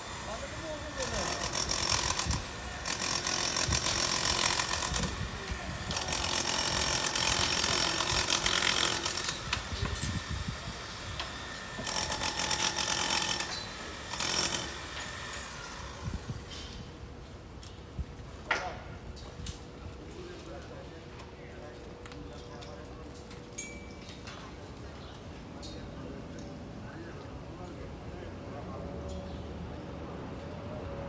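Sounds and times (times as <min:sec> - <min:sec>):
power tool chipping stone: 0:00.6 - 0:10.0, 0:11.6 - 0:15.4.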